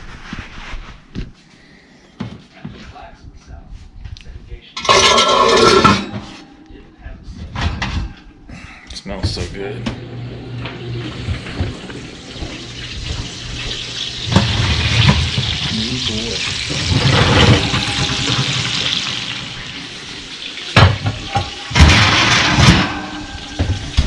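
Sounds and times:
metal clatter: 0:04.8 - 0:06.5, 0:16.8 - 0:19.4, 0:20.8 - 0:24.0
hot fat sizzling: 0:11.2 - 0:24.0
metal knocks of rack and pot: 0:20.8 - 0:24.0.

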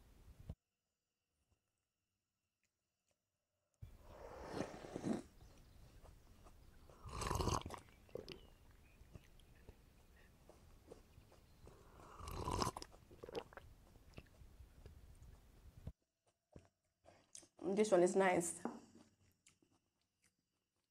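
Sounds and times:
person sipping loudly: 0:04.1 - 0:05.4, 0:07.0 - 0:08.5, 0:11.8 - 0:13.6
slurping mouth sound: 0:04.1 - 0:05.5, 0:07.0 - 0:08.5, 0:11.8 - 0:13.6
wet mouth clicks and swallows: 0:07.0 - 0:08.5, 0:12.0 - 0:15.0.

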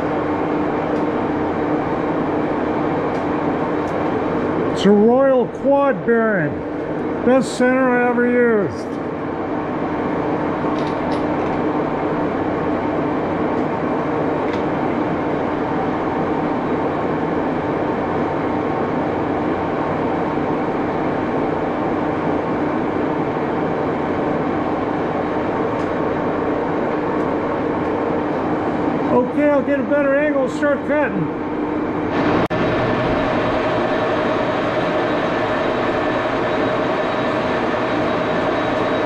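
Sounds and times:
lathe running: 0:32.1 - 0:39.0.

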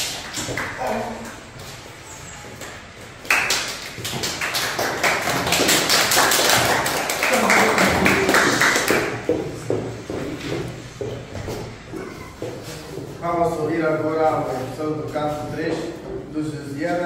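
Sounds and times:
group applause: 0:00.0 - 0:01.5, 0:02.6 - 0:09.4.

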